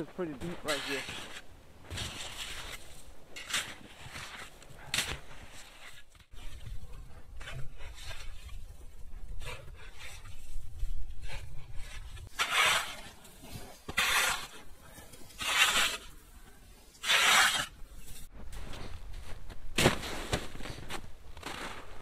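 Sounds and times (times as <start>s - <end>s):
shovel scooping snow: 0.1s - 6.6s, 11.8s - 16.3s, 16.9s - 18.8s, 19.8s - 22.0s
shovel scraping snow: 0.2s - 6.6s, 11.8s - 16.3s, 16.9s - 18.9s, 19.8s - 22.0s.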